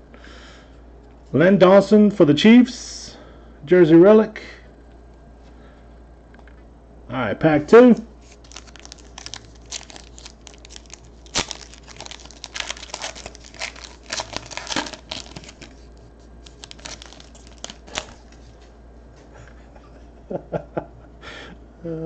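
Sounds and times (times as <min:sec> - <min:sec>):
wrapper tearing and crinkling: 0:08.2 - 0:18.5
cards being handled: 0:08.2 - 0:18.7.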